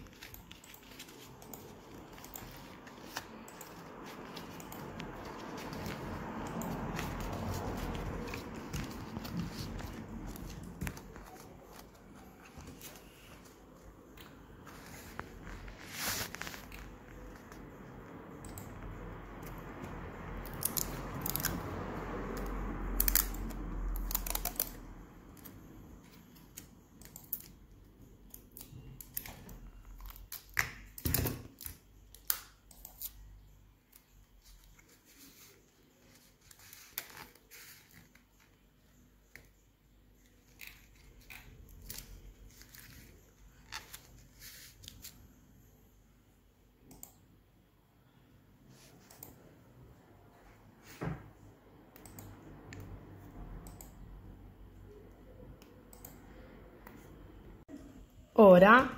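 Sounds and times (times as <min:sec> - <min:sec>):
plastic straws rustling: 0:00.0 - 0:13.7, 0:14.7 - 0:17.3.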